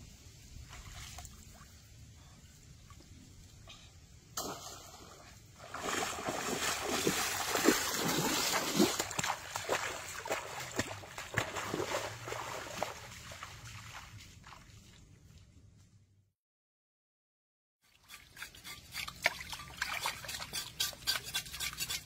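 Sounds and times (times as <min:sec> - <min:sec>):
splashing steps in muddy water: 0:04.4 - 0:15.0, 0:19.0 - 0:20.6.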